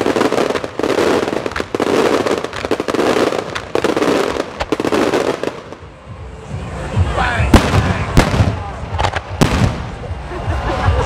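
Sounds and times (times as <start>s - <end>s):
firework bangs: 0.0s - 6.0s, 7.0s - 10.3s
fireworks hissing and crackling: 0.0s - 10.4s.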